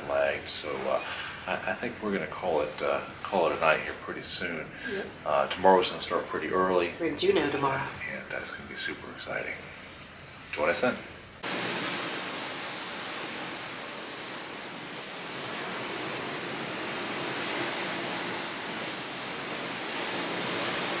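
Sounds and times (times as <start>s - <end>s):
steady rushing noise: 10.4s - 21.0s.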